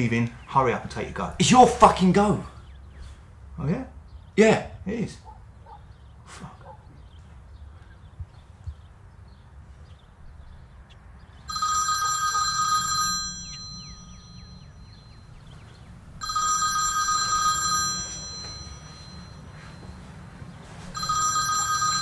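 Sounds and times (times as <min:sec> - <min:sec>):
phone ringing electronic ringtone: 0:11.5 - 0:15.3, 0:16.2 - 0:22.0.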